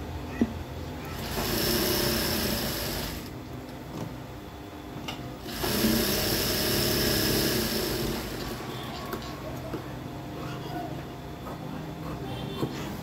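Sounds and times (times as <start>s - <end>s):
sewing machine stitching: 1.2s - 3.3s, 5.4s - 8.6s.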